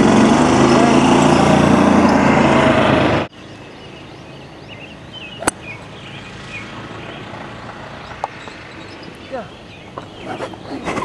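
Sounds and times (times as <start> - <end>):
loud small engine running: 0.0 - 3.3, 3.9 - 8.8
birds chirping: 0.1 - 11.0
golf club striking ball: 5.3 - 8.4.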